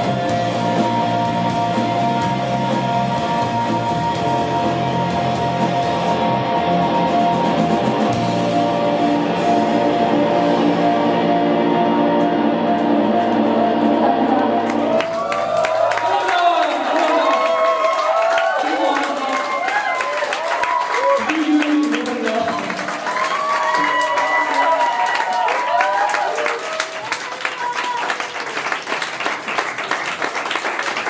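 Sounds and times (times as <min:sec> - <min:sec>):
distorted electric guitar drone: 0:00.0 - 0:15.2
live rock band playing: 0:00.0 - 0:16.1.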